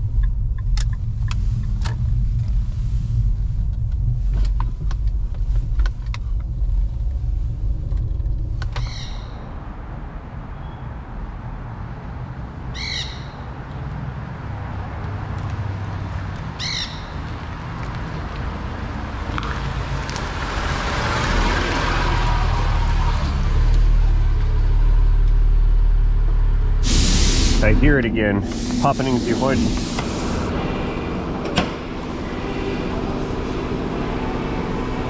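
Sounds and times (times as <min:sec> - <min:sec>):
car engine and road rumble: 0:00.0 - 0:35.0
steady hiss: 0:26.8 - 0:30.5.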